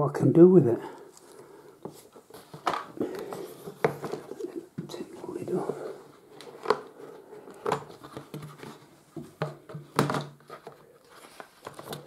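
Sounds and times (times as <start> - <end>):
paper rustling: 1.1 - 5.4, 6.0 - 12.0
cardboard taps and knocks: 7.6 - 10.8.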